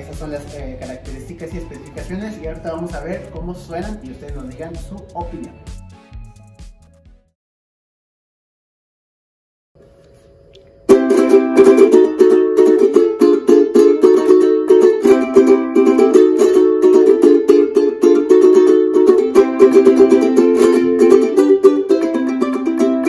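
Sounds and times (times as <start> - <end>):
ukulele strummed: 0.0 - 5.5, 10.9 - 23.0.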